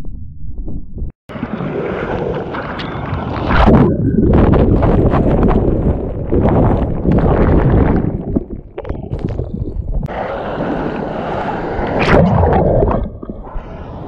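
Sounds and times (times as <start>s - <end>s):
wind: 1.3s - 7.0s, 10.0s - 14.0s
surf churning with splashes: 1.3s - 8.3s, 10.1s - 14.0s.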